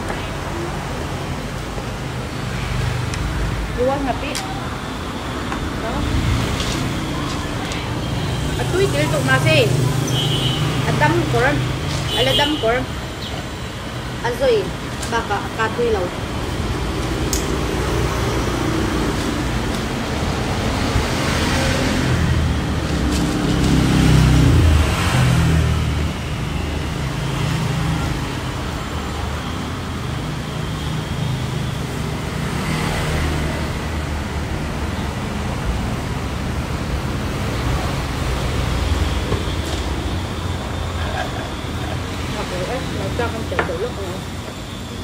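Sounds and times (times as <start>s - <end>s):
road traffic rumble: 0.0s - 45.0s
vehicle passing: 15.6s - 26.2s.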